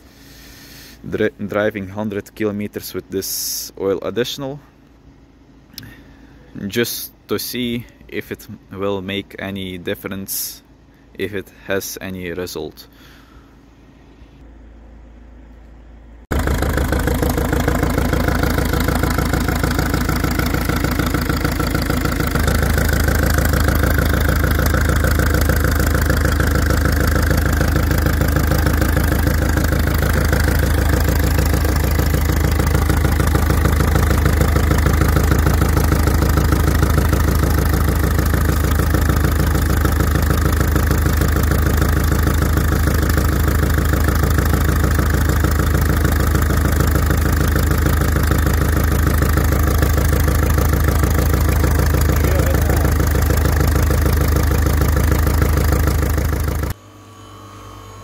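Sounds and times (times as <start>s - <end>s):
diesel engine idling: 16.3s - 56.8s.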